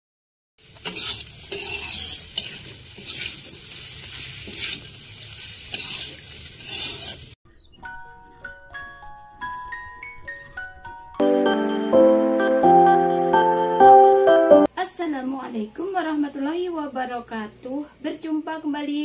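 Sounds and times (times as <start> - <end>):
frying hiss: 0.6 - 7.4
spatula scraping wok: 0.6 - 7.4.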